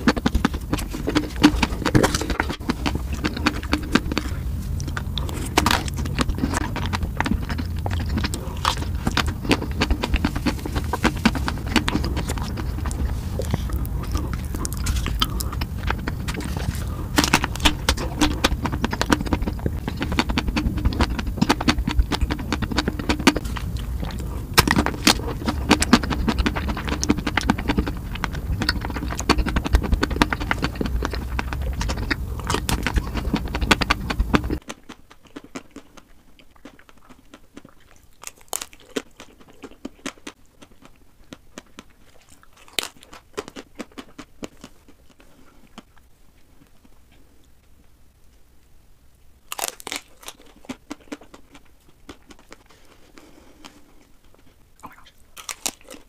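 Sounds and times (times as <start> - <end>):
steady low hum: 0.0 - 34.6
crisp crackles: 0.0 - 45.9
biting and chewing ice cream bars: 0.0 - 47.6, 49.4 - 56.0.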